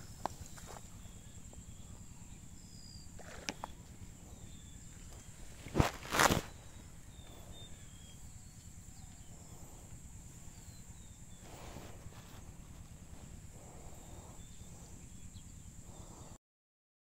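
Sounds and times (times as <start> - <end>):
faint chirps: 0.0 - 16.4
brief rustling: 5.6 - 6.6.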